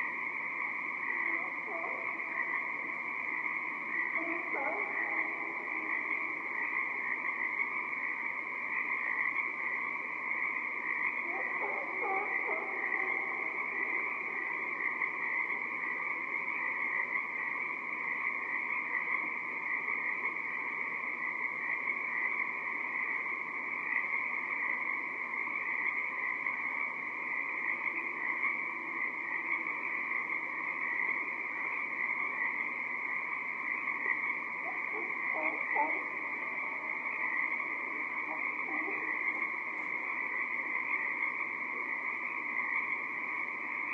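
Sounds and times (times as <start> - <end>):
tree frogs trilling chorus: 0.0 - 43.9
lower pitched animal calls: 34.0 - 41.2.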